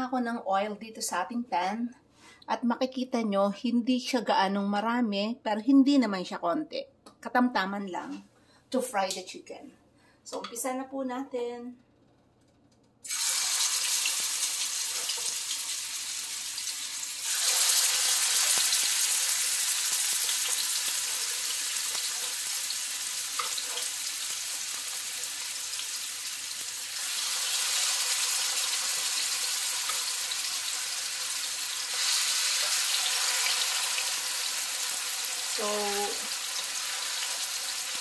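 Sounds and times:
chicken sizzling in hot oil: 13.1s - 38.0s.

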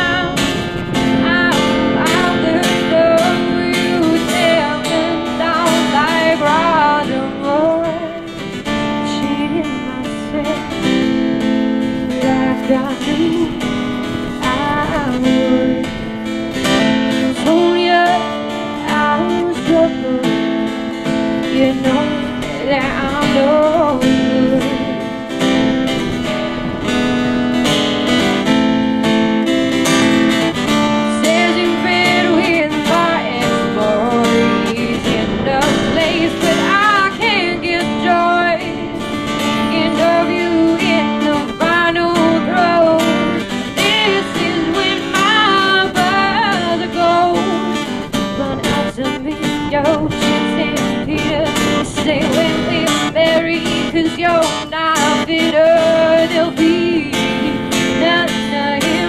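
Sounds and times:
acoustic guitar strumming: 0.0s - 59.0s.

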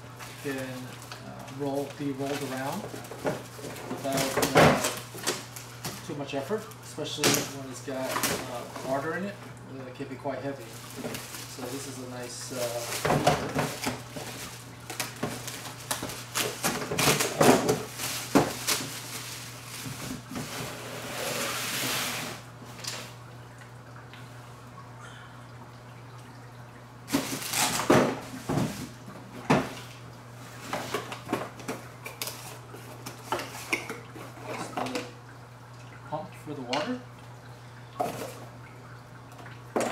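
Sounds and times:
plastic wrapping rustling: 0.2s - 7.0s, 10.5s - 23.2s, 27.1s - 29.1s, 29.7s - 35.0s
steady low hum: 22.2s - 39.9s.

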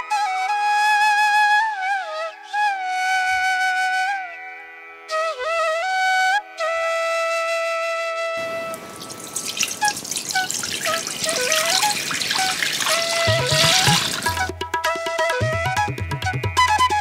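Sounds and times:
flute music: 0.0s - 17.0s
water pouring into metal pot: 8.4s - 14.5s.

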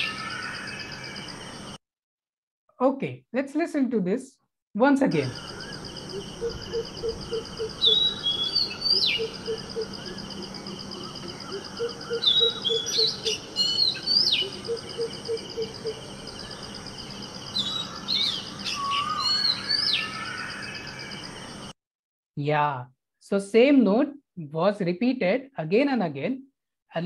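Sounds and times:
bird singing whistles and trills: 6.4s - 10.2s, 11.0s - 16.0s, 17.6s - 20.5s.

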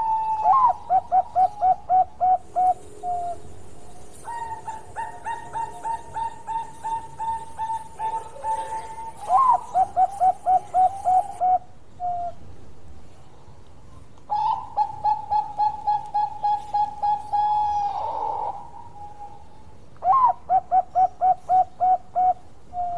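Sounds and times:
dove cooing: 0.0s - 12.4s, 14.3s - 22.9s.

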